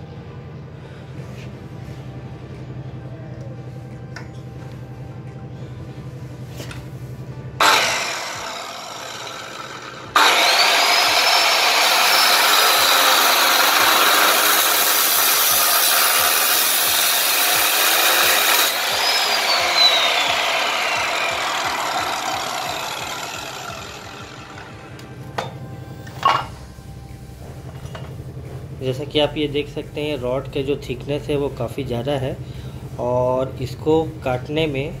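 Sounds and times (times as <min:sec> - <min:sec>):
cut-off saw grinding through steel: 0:07.6 - 0:25.0.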